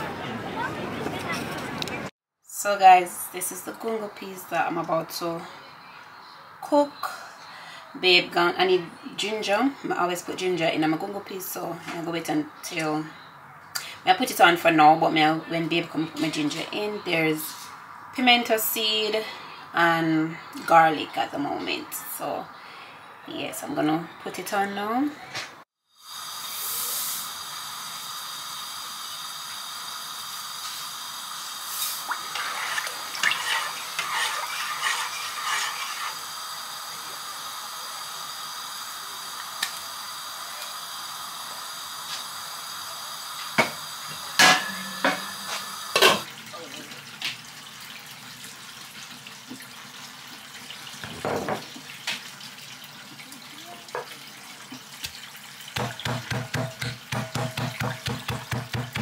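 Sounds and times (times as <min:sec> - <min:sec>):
water running from tap: 0:26.1 - 0:59.0
pot and utensils clinking: 0:44.3 - 0:46.3
knock: 0:55.8 - 0:59.0.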